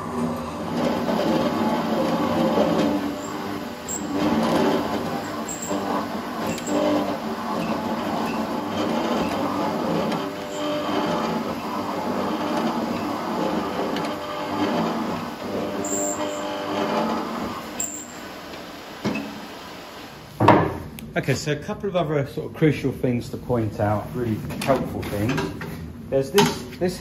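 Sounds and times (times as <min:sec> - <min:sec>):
mortiser cutter cutting wood: 0:00.0 - 0:19.6.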